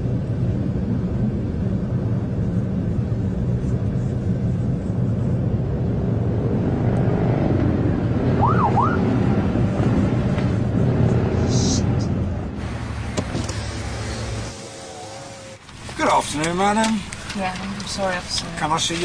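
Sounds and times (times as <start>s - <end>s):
police siren whoop: 8.4s - 9.1s.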